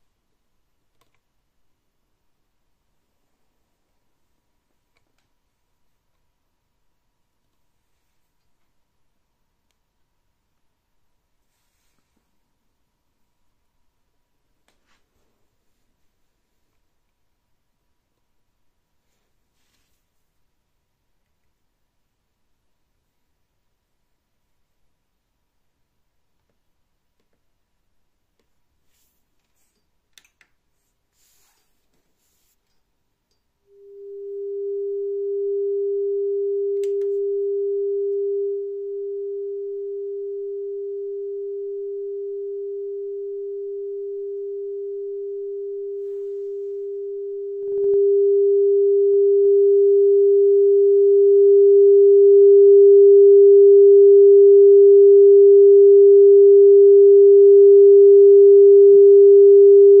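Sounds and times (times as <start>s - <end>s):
steady test tone: 33.7s - 60.0s.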